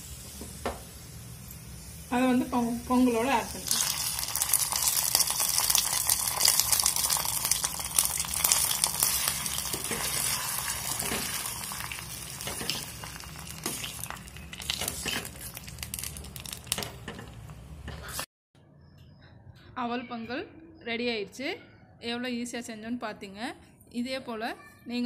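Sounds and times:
hot oil sizzling in a pot: 0.0s - 17.4s.

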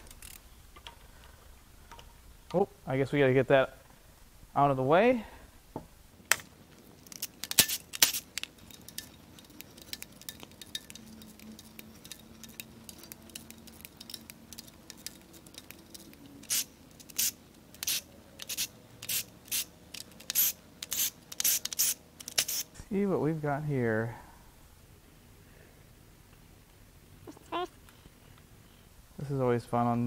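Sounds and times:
metal hand tools clinking: 7.1s - 16.2s.

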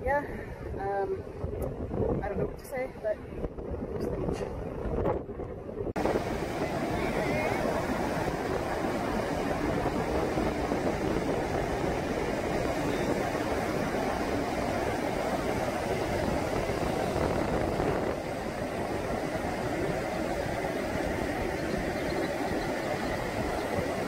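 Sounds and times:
surf breaking on sandy beach: 6.0s - 24.0s.

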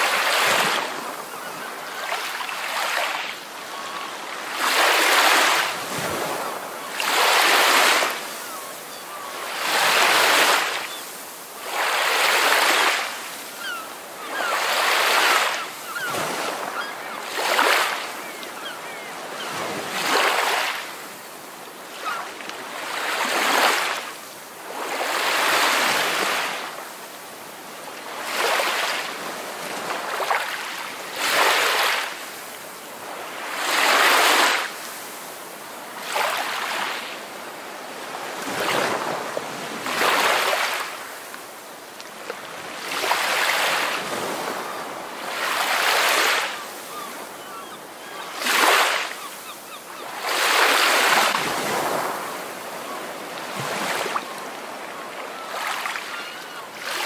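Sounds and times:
ocean waves breaking: 0.0s - 21.2s, 38.0s - 41.4s, 42.1s - 57.0s.

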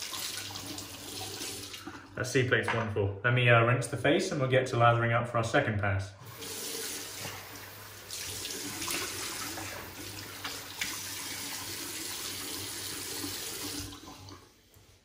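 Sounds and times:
water splashing: 6.6s - 14.4s.

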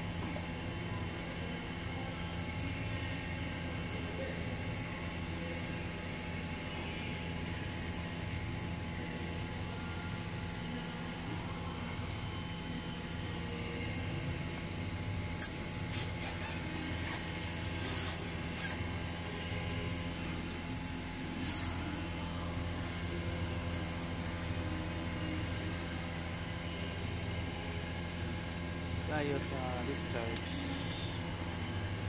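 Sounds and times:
compressor humming: 0.0s - 32.0s
tool clicks and scrapes: 15.4s - 18.8s.

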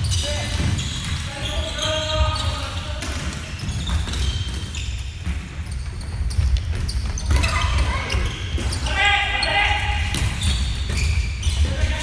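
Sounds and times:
sneakers squeaking: 0.0s - 12.0s.

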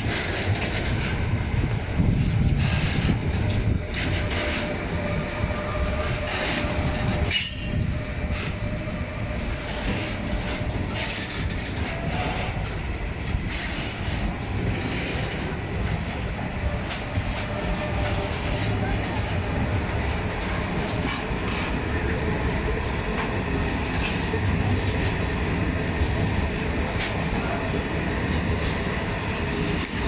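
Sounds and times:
wheels clicking over rail joints: 0.0s - 25.2s
freight train wagons rumbling: 0.0s - 30.0s.

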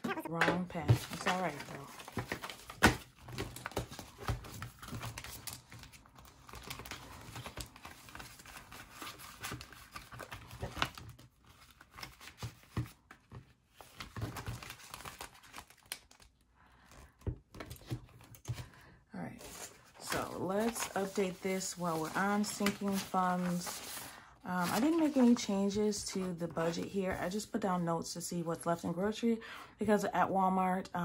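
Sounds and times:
banknotes rustling: 0.6s - 16.3s, 19.4s - 27.0s.

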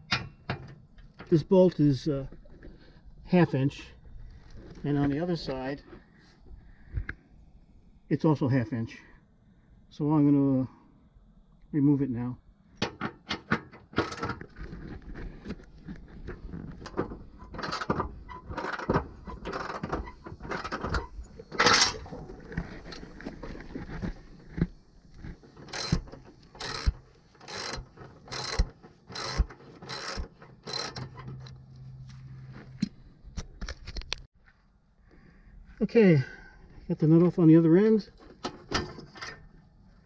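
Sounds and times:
metal handling: 16.2s - 24.0s
ratchet wrench clicking: 25.7s - 31.0s.

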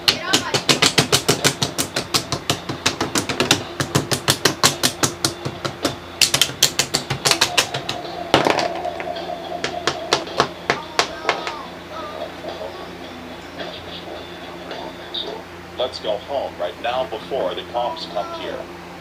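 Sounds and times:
plastic toys knocking on hard surface: 0.0s - 11.6s.

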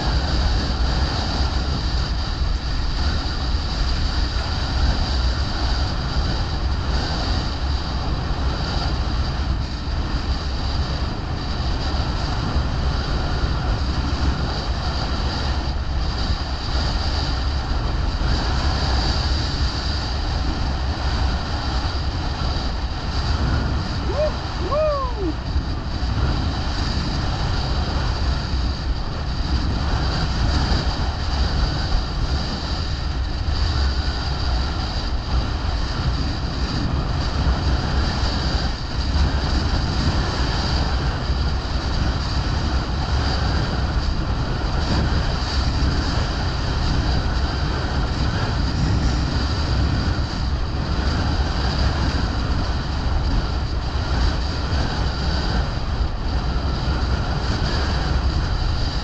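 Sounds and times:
water rushing and splashing: 0.0s - 43.2s
gusty wind on microphone: 0.0s - 59.0s.

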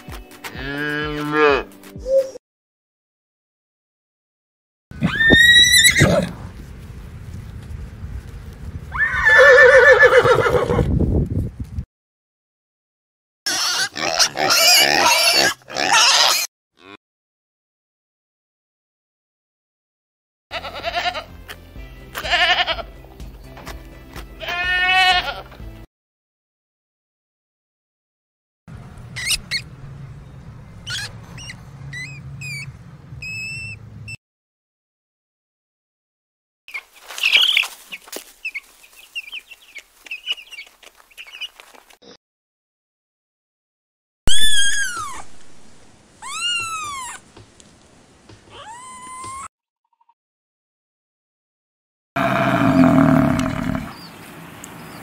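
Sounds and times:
horse whinnying: 5.0s - 6.3s, 8.9s - 10.9s, 52.2s - 53.9s
hamster squeaking: 29.2s - 29.6s, 30.9s - 33.8s, 44.3s - 45.3s, 46.2s - 47.2s.

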